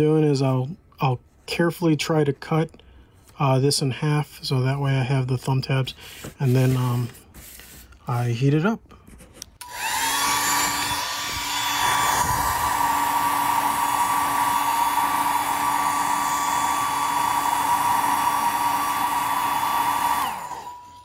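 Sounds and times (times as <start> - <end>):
hair dryer running: 9.6 - 21.0.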